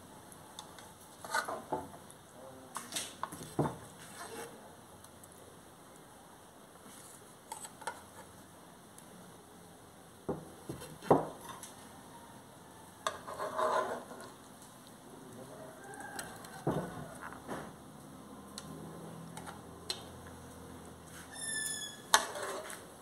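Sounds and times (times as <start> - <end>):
metal spatula scraping a pan: 1.1 - 1.7, 4.0 - 4.6, 7.0 - 8.3, 13.0 - 14.4, 21.2 - 22.8.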